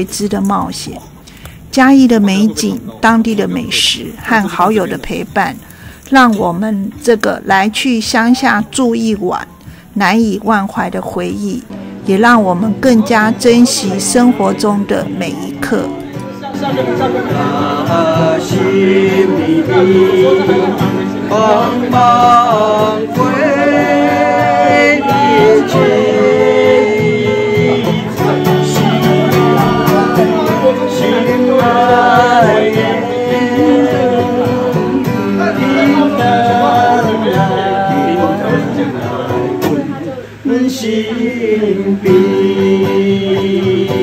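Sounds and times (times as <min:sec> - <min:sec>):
song with singer: 0:08.6 - 0:44.0.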